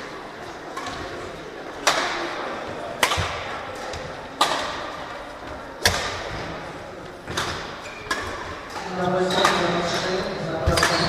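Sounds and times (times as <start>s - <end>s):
rackets striking shuttlecock: 0.7s - 5.0s, 5.8s - 6.5s, 7.3s - 11.0s.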